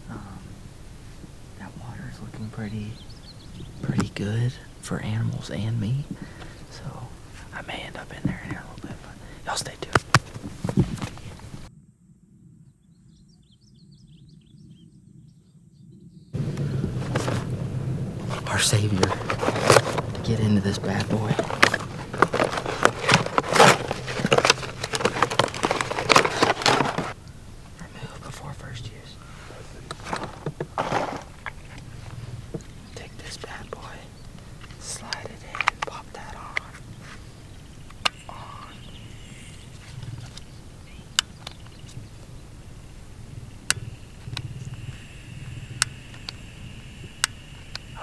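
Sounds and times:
handling noises: 6.0 - 11.7, 16.4 - 42.3
faint high hum: 15.9 - 48.0
low rumble: 16.4 - 33.0
packaging torn and crinkled: 21.0 - 27.2.

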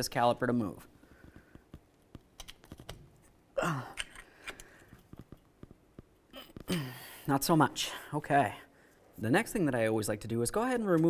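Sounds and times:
person grunting with effort: 3.6 - 4.0, 6.4 - 7.2.

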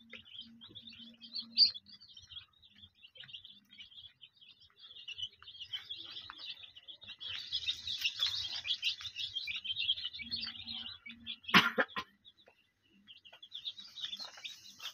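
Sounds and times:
chicks peeping: 0.0 - 14.9.

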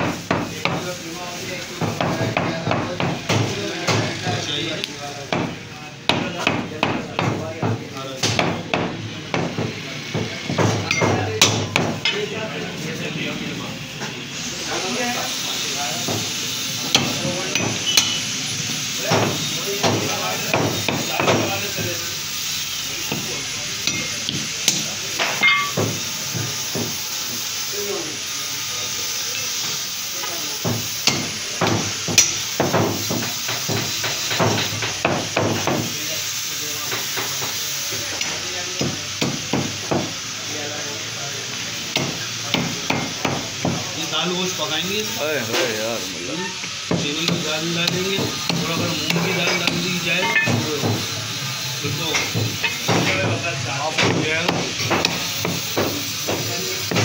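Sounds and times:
cleaver chopping meat on wood: 5.3 - 12.0.

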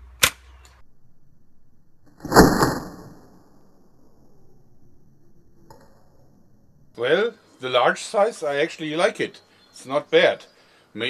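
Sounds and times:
steel ball striking target: 2.1 - 3.7.

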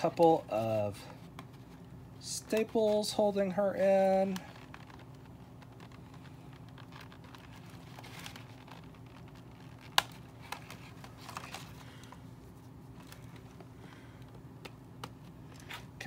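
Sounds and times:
plastic packaging crinkling: 4.0 - 13.6.

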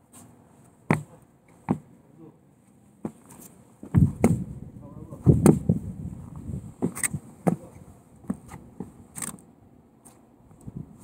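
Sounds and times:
sneaker footsteps on wooden deck: 0.1 - 2.0, 2.9 - 4.6, 5.2 - 9.4.

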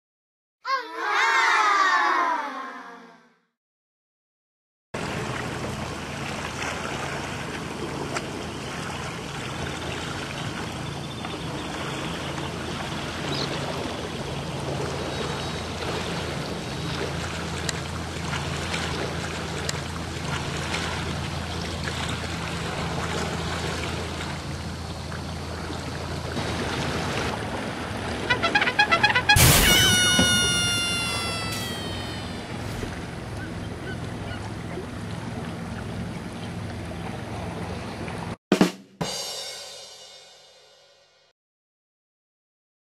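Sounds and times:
water splashing against hull: 5.0 - 30.4
boat motor running: 5.0 - 38.3.

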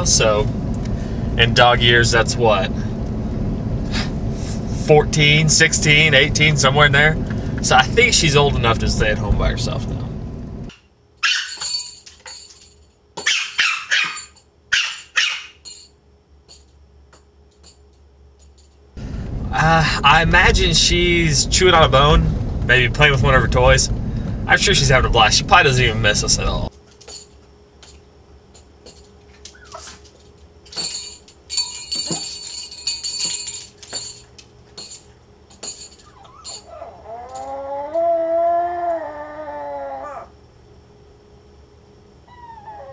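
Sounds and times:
small dog yapping: 11.2 - 11.6, 13.2 - 15.6, 29.5 - 30.0, 36.0 - 40.3
collar tags jingling: 11.2 - 16.8, 27.0 - 37.5.

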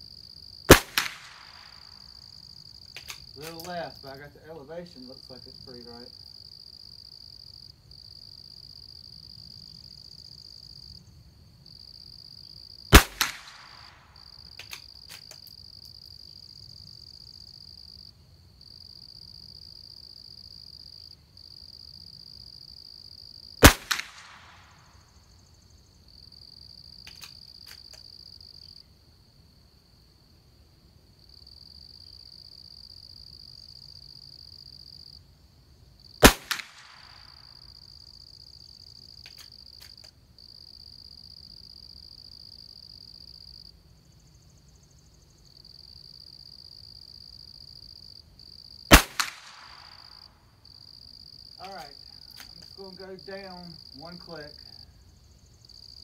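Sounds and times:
rifle shots: 0.7 - 2.0, 12.9 - 14.0, 23.6 - 24.8, 36.2 - 37.4, 48.9 - 50.2
light clicks: 14.6 - 15.5, 27.0 - 28.1
high insect buzz: 24.4 - 30.3, 35.9 - 56.0.

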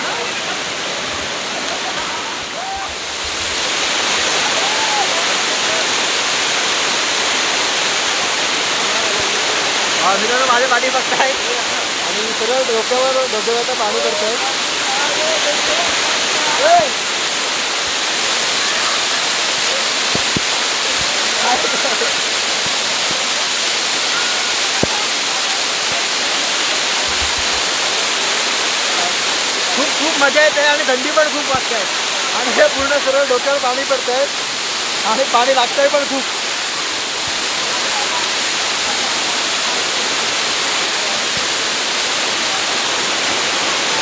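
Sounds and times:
waterfall rushing over rock: 0.0 - 44.0.

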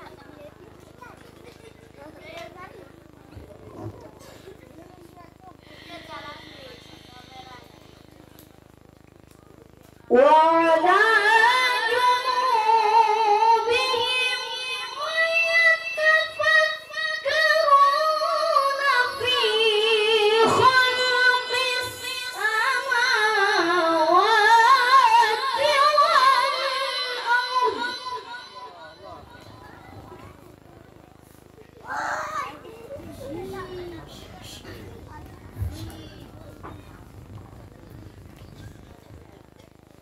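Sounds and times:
child reciting melodically: 10.8 - 30.4.

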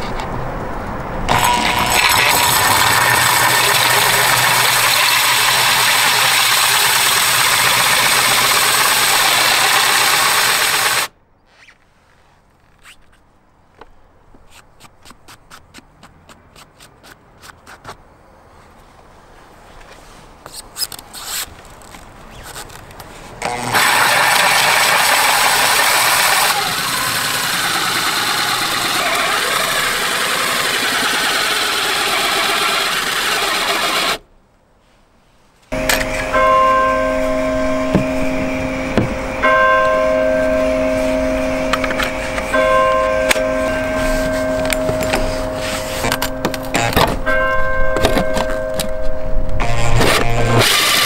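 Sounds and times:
drill cutting with hole saw: 1.3 - 11.1, 23.4 - 34.2, 43.6 - 47.1, 49.6 - 51.0.

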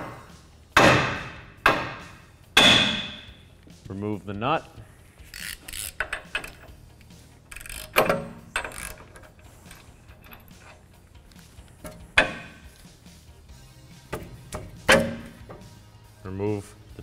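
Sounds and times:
sharp metal knocks: 0.8 - 3.3, 11.8 - 12.6, 14.2 - 15.7
hand tools clinking: 5.4 - 12.9.

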